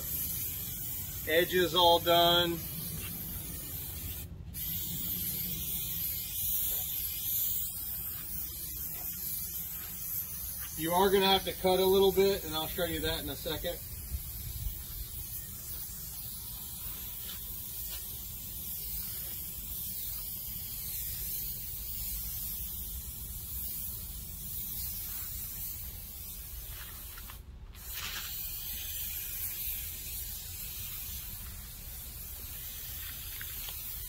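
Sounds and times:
aerosol can hissing: 0.0 - 34.0.

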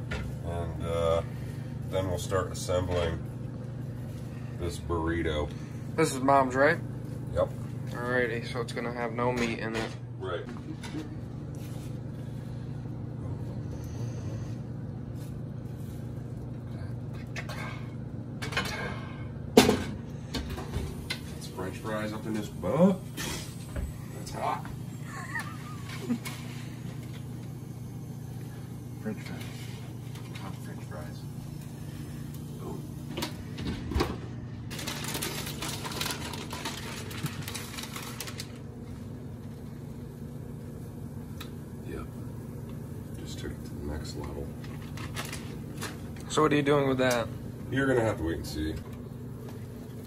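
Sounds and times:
steady low hum: 0.0 - 50.0
plastic bag crinkling: 34.7 - 38.8, 44.7 - 46.0.

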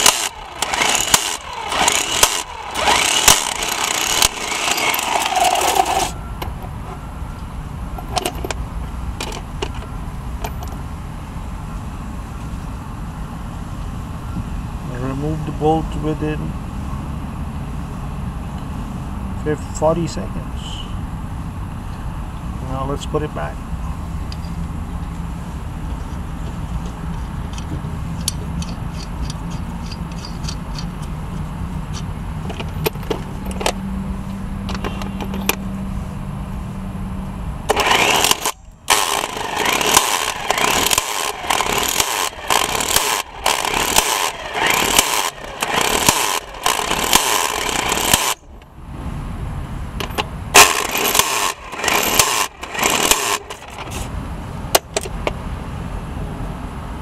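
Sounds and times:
impact wrench bursts: 0.0 - 6.6, 37.7 - 48.5, 50.6 - 54.0.

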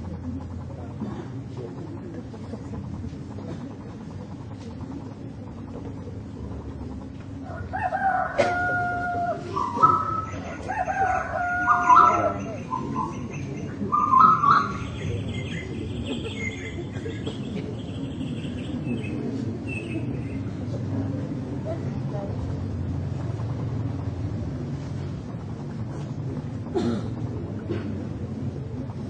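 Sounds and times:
rooster crowing: 7.4 - 12.6
small birds chirping: 9.5 - 20.7.

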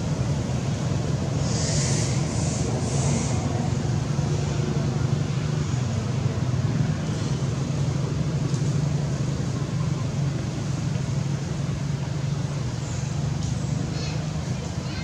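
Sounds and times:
constant low hum: 0.0 - 15.0
road traffic rumble: 0.0 - 15.0
brief high hisses: 1.4 - 3.5.

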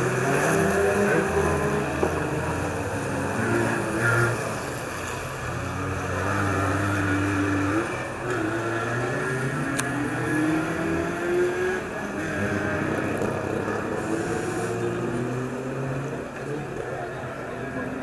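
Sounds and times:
background engine noise: 0.0 - 18.0
race car engines accelerating: 0.0 - 18.0.

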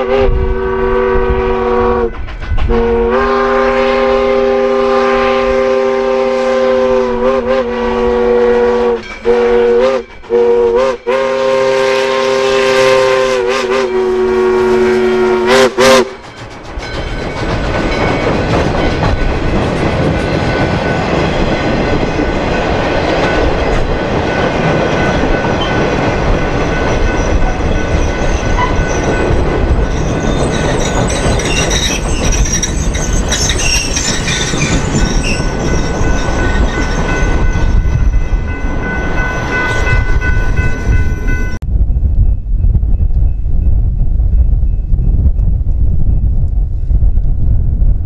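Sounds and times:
train wheels rumbling on track: 0.0 - 48.0
high squealing tones: 26.3 - 38.3.

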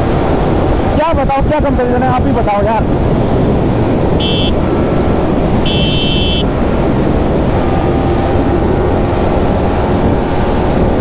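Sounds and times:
wind on microphone: 0.0 - 11.0
motorcycle engine at speed: 2.9 - 11.0
short high beep: 4.2 - 4.6, 5.7 - 6.4.

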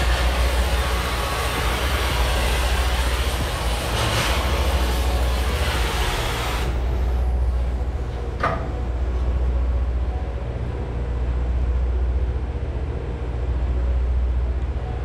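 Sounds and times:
cutting torch hissing: 0.0 - 8.3
steady low rumble: 0.0 - 15.0.

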